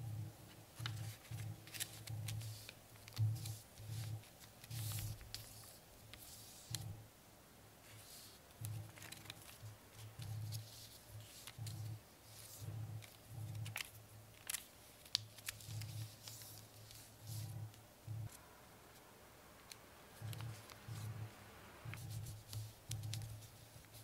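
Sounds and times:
paper rustling and crinkling: 0:00.5 - 0:06.9, 0:07.8 - 0:18.4, 0:19.7 - 0:21.3
sharp clicks of paper folds: 0:00.8 - 0:06.9, 0:07.9 - 0:18.4, 0:19.6 - 0:21.2, 0:21.9 - 0:24.0.

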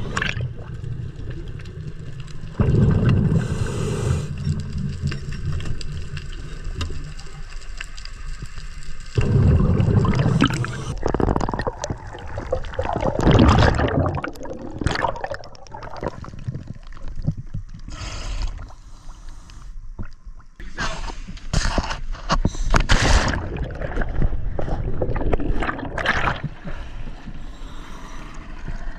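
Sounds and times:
scuba regulator bubbles underwater: 0:00.0 - 0:07.8, 0:08.4 - 0:17.9, 0:23.2 - 0:27.2.

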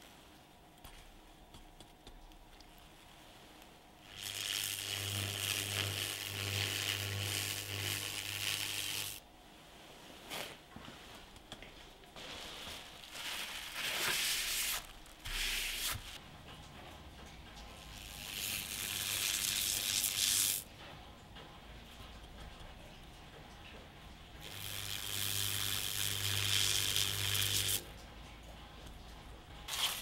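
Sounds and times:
low electrical hum: 0:00.0 - 0:30.0
electrolyte sizzling and fizzing: 0:04.0 - 0:09.2.

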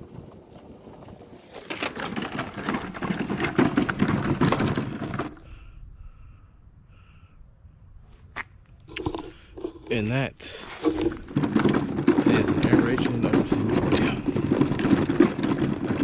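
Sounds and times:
push spreader rattling: 0:01.5 - 0:05.5, 0:10.6 - 0:16.0.

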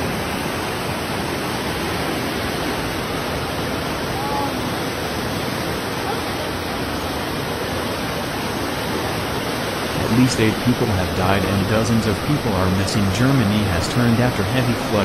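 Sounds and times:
floodwater rushing: 0:00.0 - 0:15.0.

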